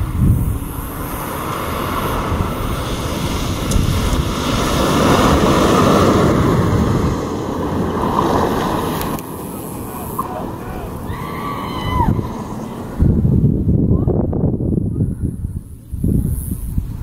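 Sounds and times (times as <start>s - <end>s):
rally car driving past on dirt: 1.2s - 11.0s.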